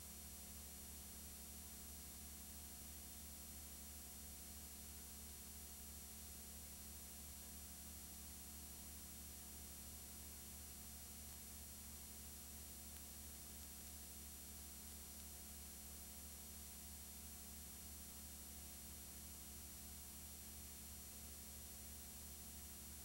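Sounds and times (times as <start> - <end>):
faint electrical hum: 0.0 - 23.0.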